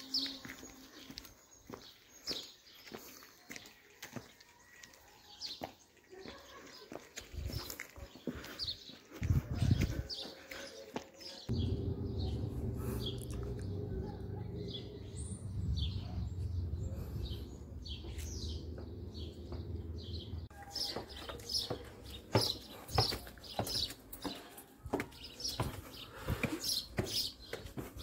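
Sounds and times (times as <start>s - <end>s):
footsteps on stone paving: 0.0s - 11.6s, 17.9s - 28.0s
small birds chirping: 0.0s - 28.0s
low steady rumble: 11.5s - 17.5s.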